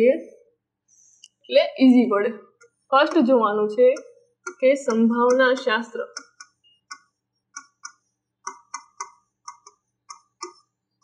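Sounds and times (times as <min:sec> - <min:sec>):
pen tip tapping on screen: 0:02.6 - 0:03.3, 0:03.9 - 0:10.6.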